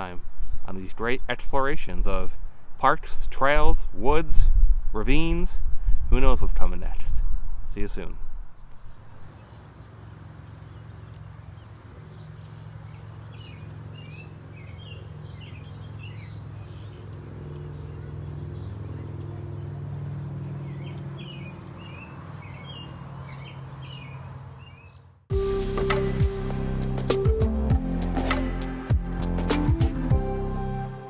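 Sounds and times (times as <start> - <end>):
steady low rumble: 0.0 - 9.3
small birds chirping: 8.9 - 25.2.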